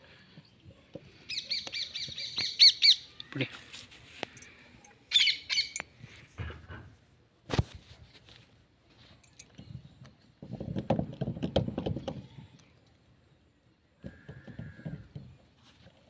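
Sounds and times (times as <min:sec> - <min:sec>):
metal knocking and rattling: 0:10.4 - 0:12.3.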